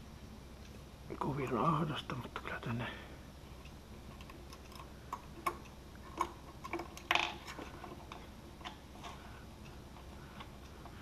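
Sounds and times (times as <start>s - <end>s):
steady low hum: 0.0s - 11.0s
hands tapping and clicking parts: 3.6s - 9.2s.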